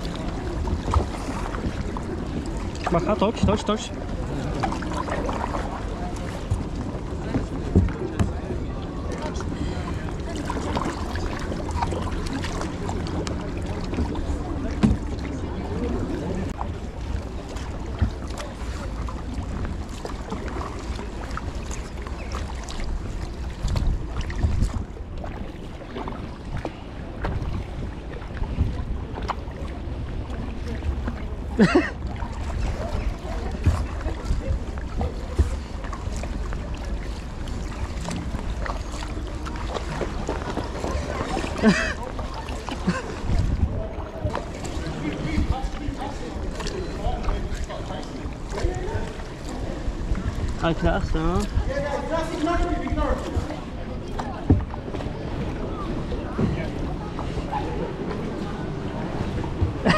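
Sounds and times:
kayak paddle splashing water: 0.0s - 59.9s
wind rumble on microphone: 0.0s - 59.9s.

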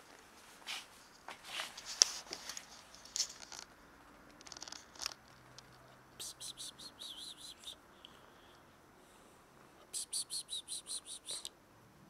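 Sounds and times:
rustles near microphone: 0.0s - 3.7s
high chirps: 6.2s - 8.2s, 9.9s - 11.5s.

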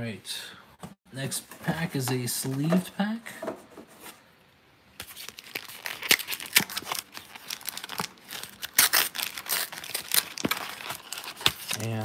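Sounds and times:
wrapper being torn and crinkled: 5.0s - 12.0s.

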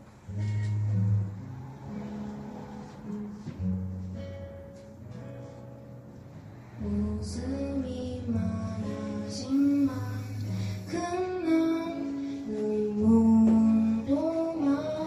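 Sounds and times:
guitar accompaniment: 0.0s - 15.0s
woman singing: 6.8s - 15.0s.

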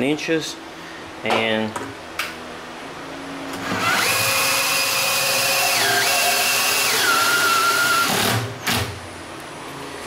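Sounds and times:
cordless drill motor whining: 3.6s - 8.5s.

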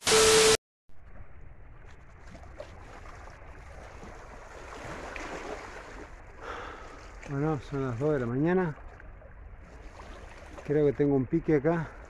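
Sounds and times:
tv static with beep: 0.0s - 0.6s
wind: 0.3s - 12.0s.

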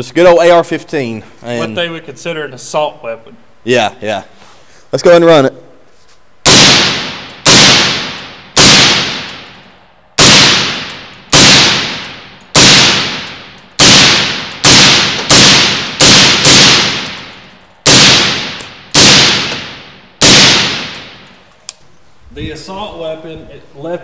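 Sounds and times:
suppressed rifle shots echoing: 6.5s - 9.6s, 10.2s - 21.3s.

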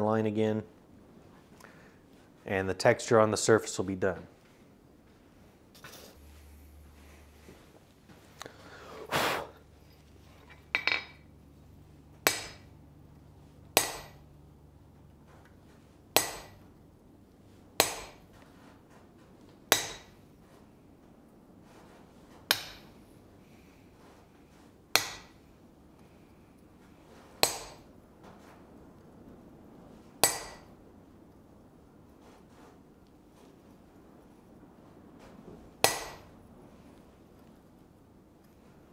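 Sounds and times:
metal clinking on anvil: 10.4s - 11.3s
hammer striking chisel on metal: 12.2s - 12.7s, 13.8s - 14.2s, 16.2s - 16.6s, 17.8s - 18.2s, 19.7s - 20.2s, 22.5s - 23.0s, 24.9s - 25.4s, 27.4s - 27.9s, 30.2s - 30.7s, 35.8s - 36.3s.

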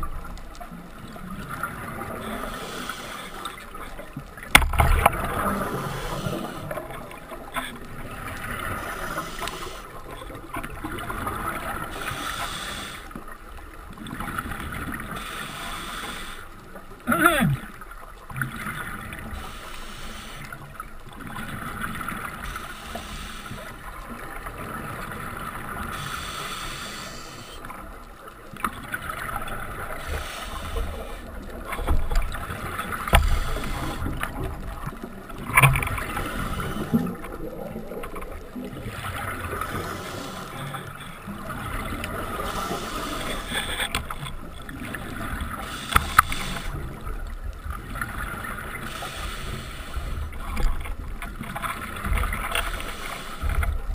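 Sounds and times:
scuba regulator breathing: 2.0s - 3.8s, 5.1s - 10.3s, 11.5s - 13.3s, 15.0s - 17.7s, 19.2s - 20.8s, 22.3s - 23.9s, 25.5s - 27.9s, 29.7s - 34.6s, 35.8s - 37.9s, 38.9s - 47.1s, 48.6s - 50.6s, 52.6s - 53.7s.

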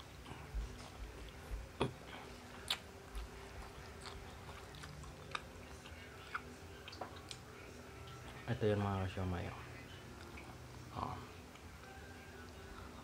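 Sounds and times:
person chewing food: 0.0s - 8.5s.

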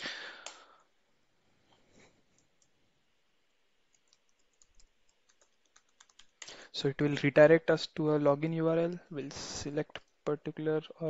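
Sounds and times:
computer keyboard clicks: 3.9s - 6.6s.

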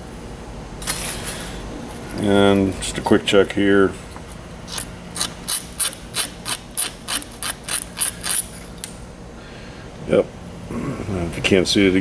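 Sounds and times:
razor blade scraping wire: 4.7s - 8.9s.

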